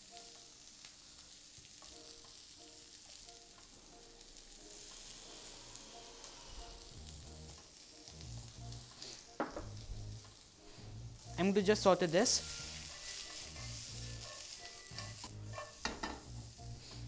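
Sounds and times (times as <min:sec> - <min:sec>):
vegetables sizzling in a frying pan: 0:00.0 - 0:17.0.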